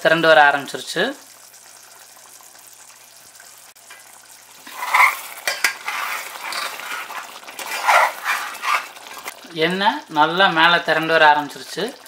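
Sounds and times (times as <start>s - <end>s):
ladle scraping a pot: 4.6s - 9.4s.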